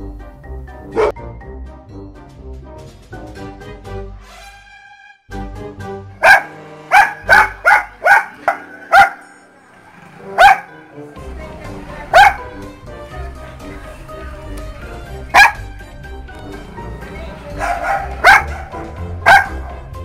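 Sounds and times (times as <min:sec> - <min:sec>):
background music: 0:00.0 - 0:20.0
dog barking: 0:00.9 - 0:01.1, 0:06.2 - 0:09.4, 0:10.2 - 0:10.8, 0:12.1 - 0:12.6, 0:15.3 - 0:15.7, 0:17.5 - 0:19.9.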